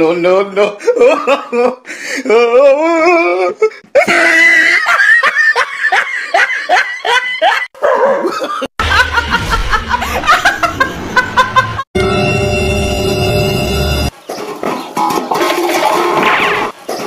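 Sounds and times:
rhythmic ha-ha laughter: 3.9 - 11.9
woman laughing loudly: 4.0 - 11.9.

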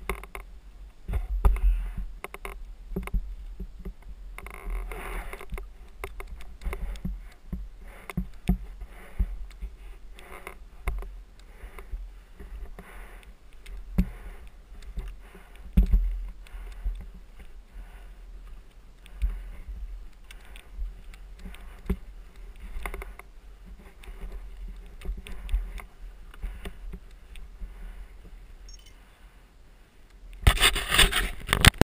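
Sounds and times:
camera scraping against mud: 30.4 - 31.8.

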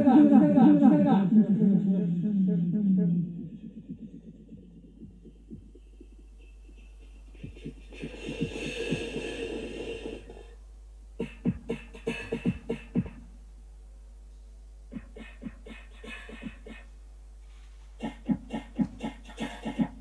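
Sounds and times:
held noisy electronic tone: 3.8 - 10.6.

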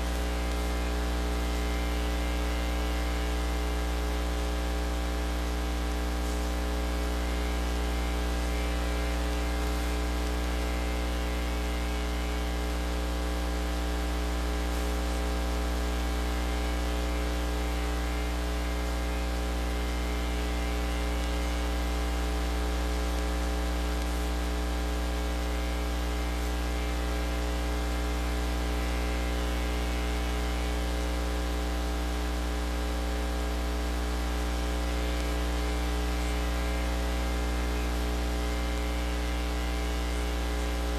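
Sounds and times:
electrical mains hum: 0.0 - 40.9.

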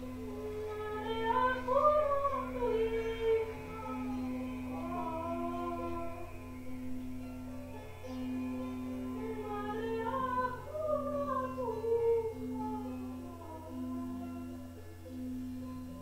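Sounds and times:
person singing wordlessly: 0.0 - 6.3, 9.0 - 14.7
low drone: 0.0 - 16.0.

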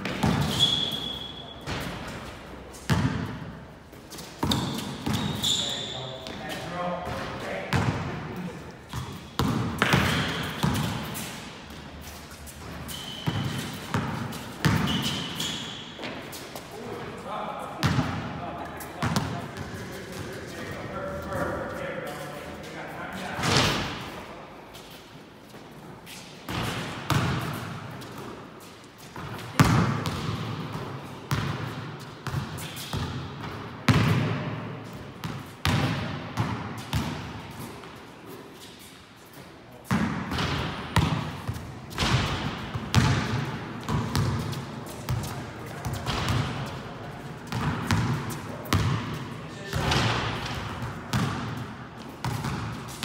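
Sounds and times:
basketball bouncing on court: 0.0 - 2.2, 2.9 - 3.4, 4.4 - 6.4, 7.0 - 8.1, 8.9 - 11.3, 12.6 - 16.2, 17.8 - 18.3, 19.0 - 19.8, 26.5 - 28.3, 29.2 - 37.3, 39.9 - 46.8, 47.5 - 53.0
sneakers squeaking on court: 0.0 - 16.8, 24.7 - 34.3, 35.2 - 53.0.

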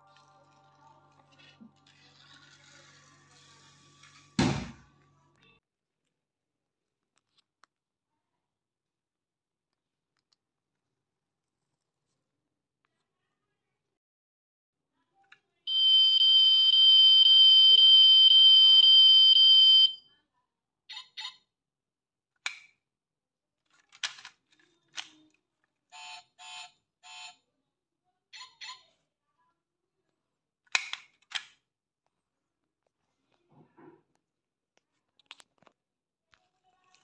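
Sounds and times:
toy car electronic tone: 15.7 - 20.1, 26.0 - 27.4
small plastic and metal clicks: 22.4 - 22.8, 23.7 - 25.4, 30.7 - 31.6.

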